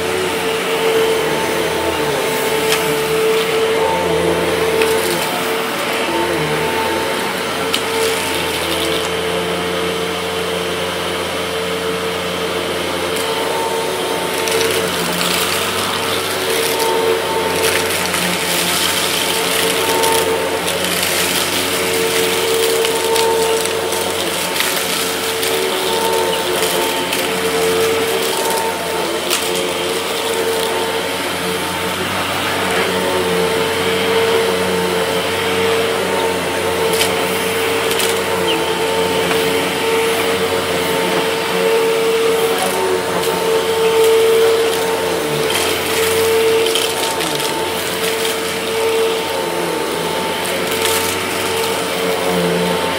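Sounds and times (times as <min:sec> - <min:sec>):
vacuum cleaner whining: 0:00.0 - 0:52.9.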